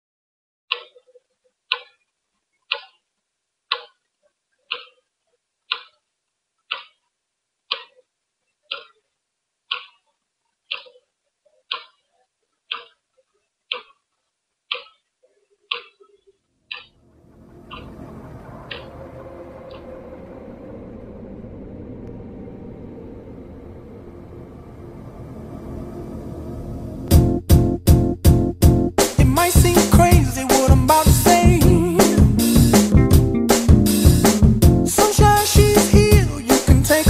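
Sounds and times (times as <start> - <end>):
clock ticking: 0.7 - 1.0, 1.7 - 2.0, 2.7 - 3.0, 3.7 - 4.0, 4.7 - 5.0, 5.7 - 6.0, 6.7 - 7.0, 7.7 - 8.0, 8.7 - 9.0, 9.7 - 10.0, 10.7 - 11.0, 11.7 - 12.0, 12.7 - 13.0, 13.7 - 14.0, 14.7 - 15.0, 15.7 - 17.0, 17.6 - 19.0, 27.1 - 37.0.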